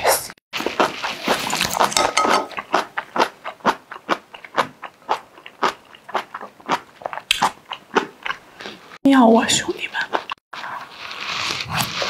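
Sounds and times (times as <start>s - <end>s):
crunchy chewing: 0.6s - 9.0s
chopsticks scraping in a bowl: 0.8s - 2.7s.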